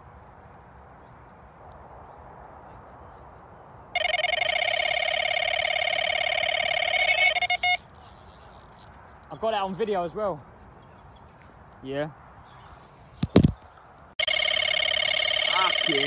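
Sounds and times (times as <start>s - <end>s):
bite alarm warbling beeps: 4.0s - 7.9s, 14.2s - 16.0s.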